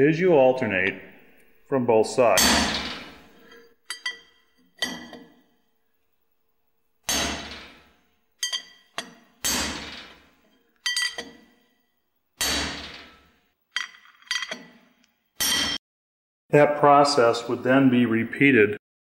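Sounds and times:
hammer striking steel punch: 0:02.3 - 0:05.4, 0:07.0 - 0:10.3, 0:12.4 - 0:13.3, 0:15.4 - 0:15.8.

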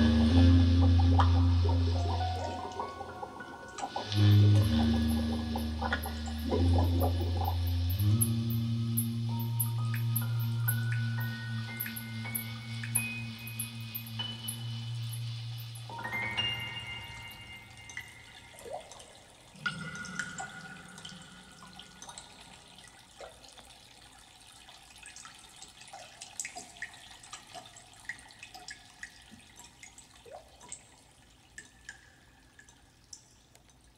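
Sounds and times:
ringing note: 0:00.0 - 0:18.5
water drips plinking: 0:00.0 - 0:33.9.

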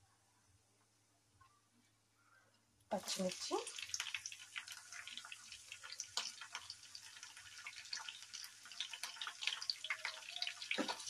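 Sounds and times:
chilli frying in hot oil: 0:02.9 - 0:11.0.

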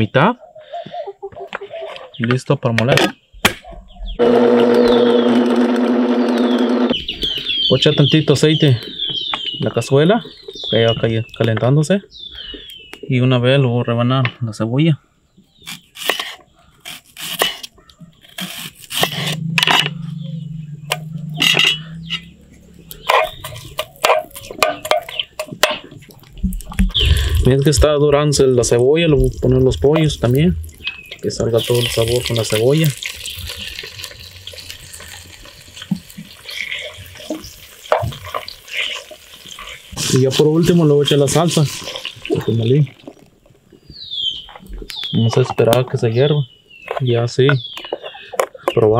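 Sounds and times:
knife slicing onion: 0:15.7 - 0:17.7, 0:18.3 - 0:19.4
chicken sizzling in hot oil: 0:31.5 - 0:42.5.

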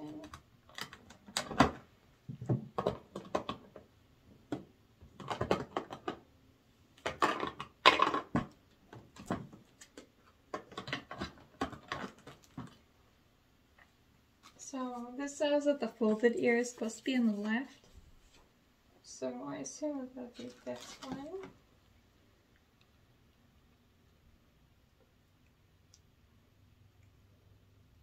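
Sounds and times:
plastic packaging clicking and crackling: 0:00.1 - 0:01.8.

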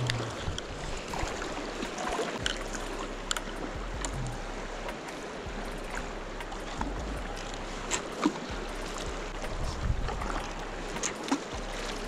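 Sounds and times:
fast river current rushing: 0:00.0 - 0:12.0
faint scattered clicks: 0:03.2 - 0:05.2.

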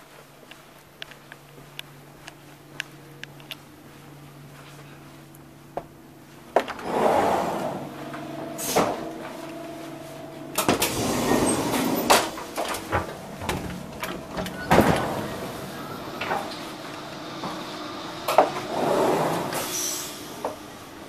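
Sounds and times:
footsteps: 0:00.0 - 0:06.9, 0:07.5 - 0:18.7
sliding door whooshing open: 0:06.6 - 0:20.7.

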